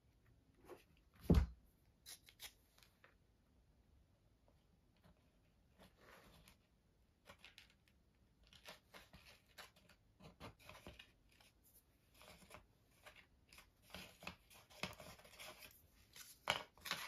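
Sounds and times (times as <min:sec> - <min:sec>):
cardboard tubes rustling and clicking: 0:05.0 - 0:17.0.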